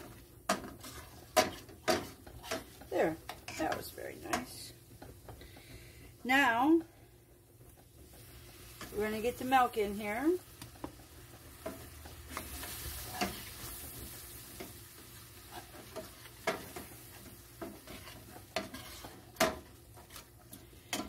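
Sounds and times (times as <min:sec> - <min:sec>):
metal spoon stirring and scraping: 0:00.0 - 0:05.4, 0:10.8 - 0:14.8, 0:15.4 - 0:21.0
low sizzle: 0:00.0 - 0:21.0.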